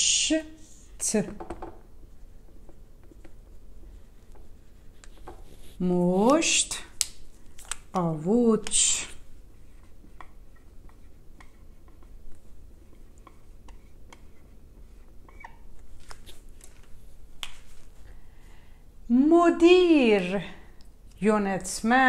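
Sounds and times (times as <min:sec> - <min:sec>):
marker tapping on whiteboard: 0:01.3 - 0:01.8
marker squeaking on whiteboard: 0:09.6 - 0:12.2, 0:12.8 - 0:15.7.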